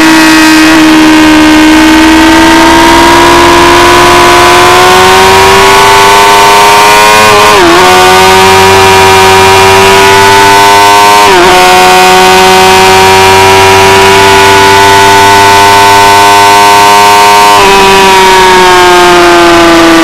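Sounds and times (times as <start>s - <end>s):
motorcycle engine revving high: 0.0s - 20.0s.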